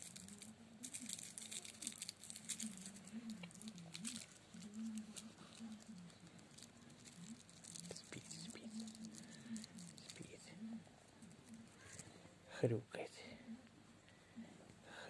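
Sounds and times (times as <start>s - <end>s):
cat snuffling and rustling: 0.0s - 12.2s.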